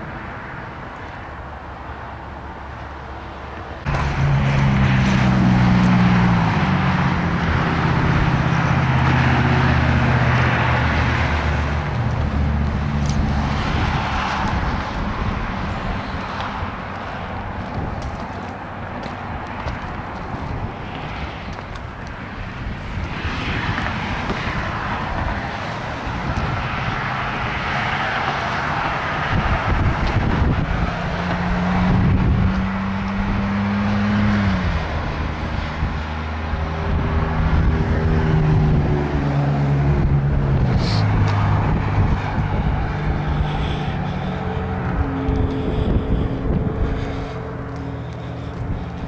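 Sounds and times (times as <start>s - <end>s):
highway traffic rushing: 0.0s - 49.0s
droning engine: 3.6s - 49.0s.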